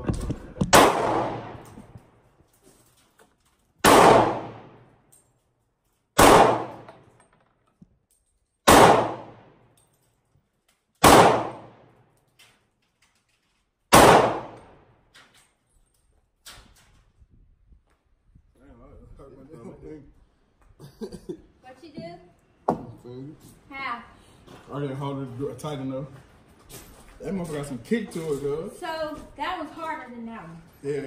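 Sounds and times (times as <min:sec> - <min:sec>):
handgun shots echoing: 0:00.7 - 0:01.8, 0:03.8 - 0:04.8, 0:06.2 - 0:07.1, 0:08.6 - 0:09.6, 0:11.0 - 0:11.9, 0:13.9 - 0:14.8.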